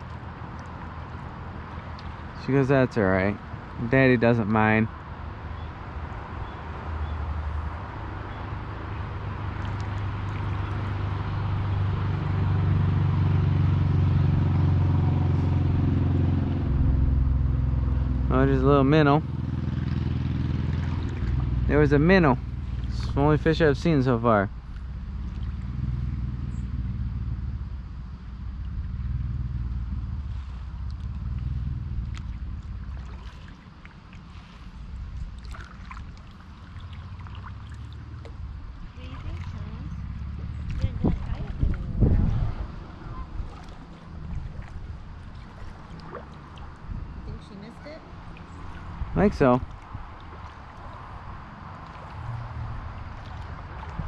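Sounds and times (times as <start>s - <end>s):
engine drone: 0.0s - 54.0s
low steady rumble: 0.0s - 54.0s
kayak paddle splashing: 9.0s - 18.2s, 19.7s - 23.4s, 24.6s - 26.2s, 30.1s - 54.0s.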